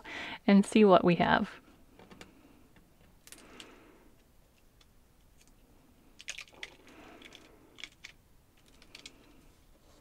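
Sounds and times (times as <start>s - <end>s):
crackling clicks of flexing plastic: 6.2s - 9.3s.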